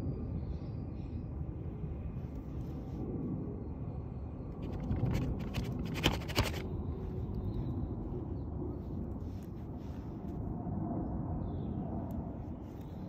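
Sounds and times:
low outdoor rumble: 0.0 - 13.0
cat rubbing on asphalt: 2.1 - 3.3, 4.6 - 10.8.

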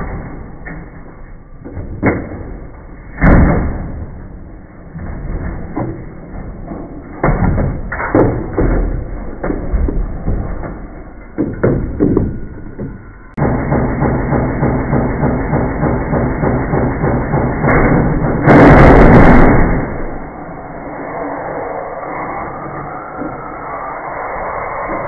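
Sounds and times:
rumbling clatter: 0.0 - 25.0
washing machine being smashed: 1.7 - 20.1.

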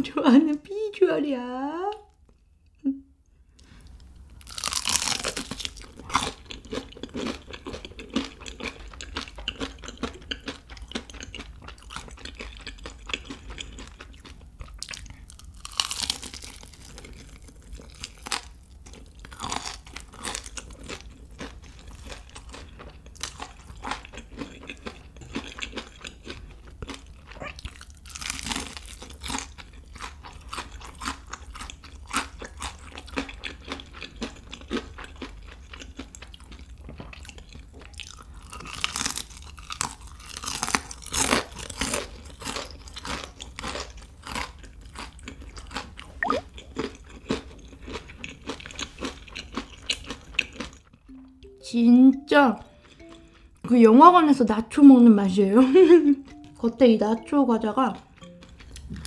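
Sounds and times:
crackly chewing: 3.6 - 51.0, 57.8 - 59.0
crunching bites of fried chicken: 4.4 - 50.9.

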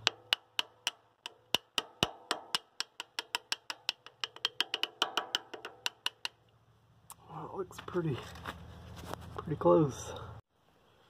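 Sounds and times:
hammer tapping on metal: 0.0 - 6.4.

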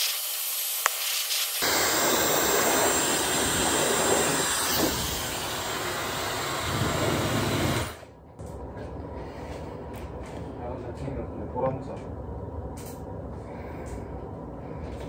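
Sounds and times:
hair dryer blowing: 0.0 - 8.0.

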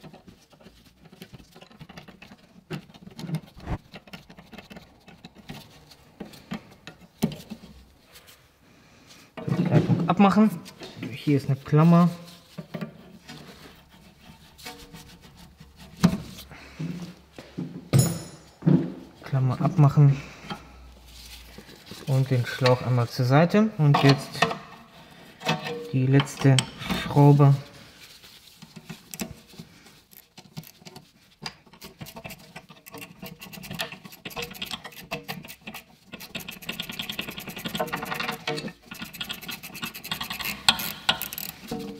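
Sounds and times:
wrench clicking: 36.2 - 41.9.

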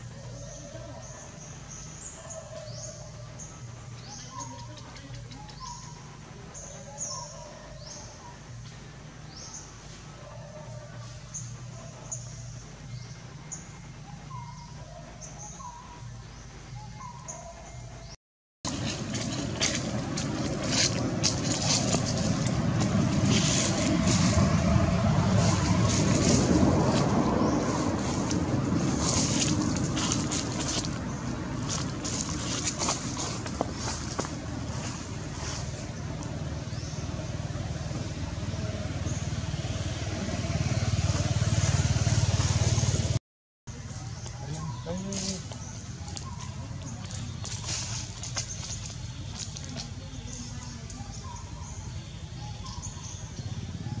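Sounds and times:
low rumbling noise: 18.7 - 43.2.

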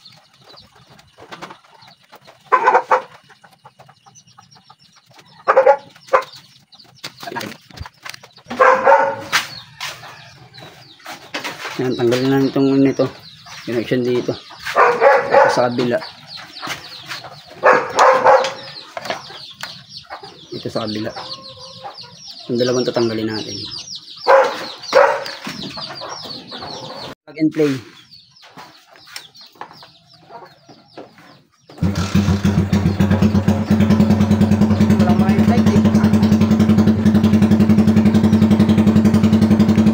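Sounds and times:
handling knocks and rattles: 0.0 - 20.3, 24.3 - 26.4
chicken clucking: 0.0 - 32.2
motorcycle engine running: 31.8 - 39.9.

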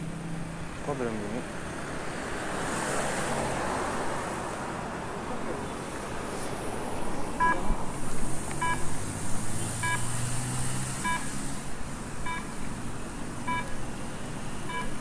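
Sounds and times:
traffic passing: 0.0 - 15.0
crossing signal beeps: 7.4 - 7.7, 8.6 - 8.8, 9.8 - 10.1, 11.0 - 11.3, 12.2 - 12.5, 13.5 - 13.7, 14.7 - 15.0.

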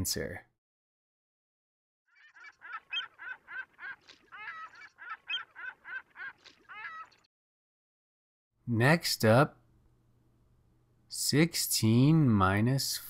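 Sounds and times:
rapid short pitched calls: 2.1 - 7.3.

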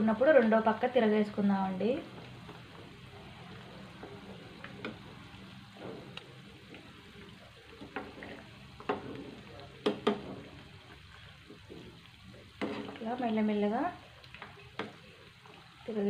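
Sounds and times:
chicken sizzling in hot oil: 0.0 - 16.0
metal spatula knocking against pan: 9.8 - 10.3.

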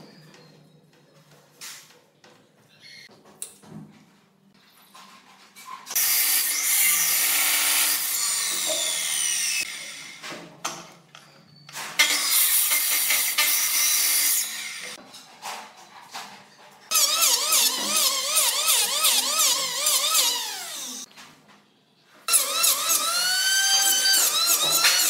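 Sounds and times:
miter saw cutting wood: 6.0 - 10.1, 16.9 - 21.1, 22.3 - 25.0.

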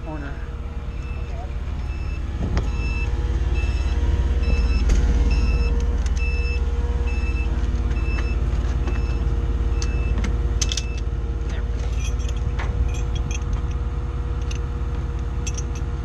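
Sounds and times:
warning alarm beeping: 0.0 - 10.2
forklift engine running: 0.0 - 16.0.

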